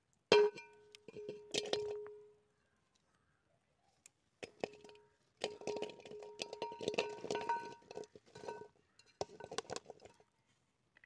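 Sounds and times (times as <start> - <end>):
chunks dropping into metal pot: 0.3 - 2.4, 4.4 - 10.2.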